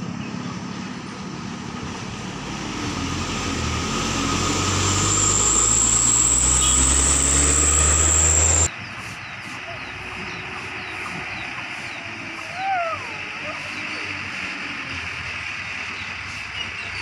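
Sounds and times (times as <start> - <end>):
diesel truck engine passing: 0.0 - 8.7
high whine: 2.1 - 8.7.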